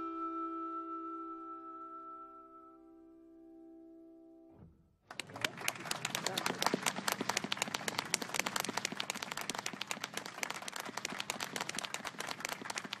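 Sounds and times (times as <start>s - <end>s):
people applauding: 5.1s - 13.0s.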